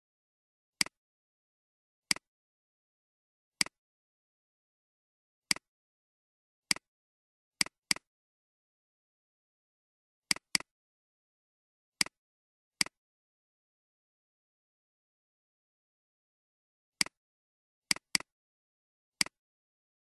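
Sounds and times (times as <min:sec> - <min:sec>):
computer mouse clicks: 0:07.6 - 0:08.1, 0:10.3 - 0:10.7, 0:17.0 - 0:17.2, 0:17.9 - 0:18.3, 0:19.2 - 0:19.4.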